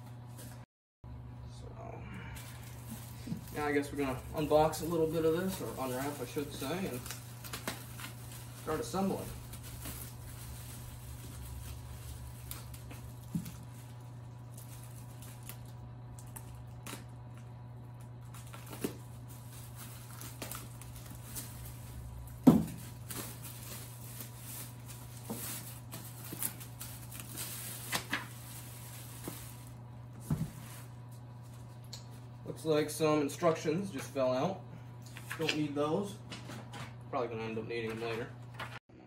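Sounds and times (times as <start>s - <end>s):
steady low hum: 0.0s - 39.0s
plastic wrapping crinkling: 2.4s - 31.8s.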